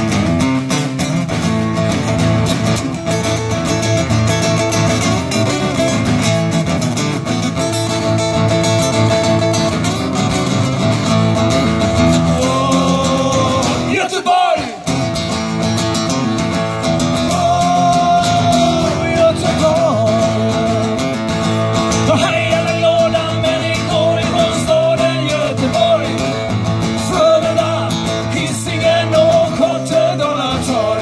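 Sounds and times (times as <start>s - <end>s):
acoustic guitars strummed: 0.0s - 31.0s
man singing: 12.2s - 15.0s, 17.2s - 31.0s.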